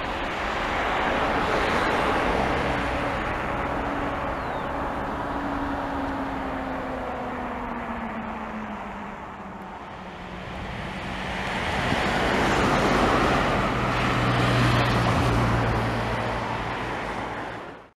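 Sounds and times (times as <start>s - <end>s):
vehicle passing by: 0.0s - 17.9s.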